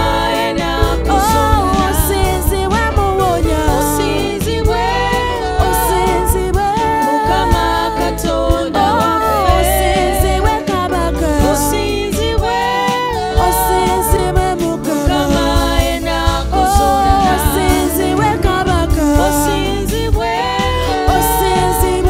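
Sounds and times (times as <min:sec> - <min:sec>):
bass: 0:00.0 - 0:22.0
electric guitars: 0:00.0 - 0:22.0
keyboard: 0:00.0 - 0:22.0
women singing praise song: 0:00.0 - 0:22.0
drum and cymbal hits: 0:11.4 - 0:22.0.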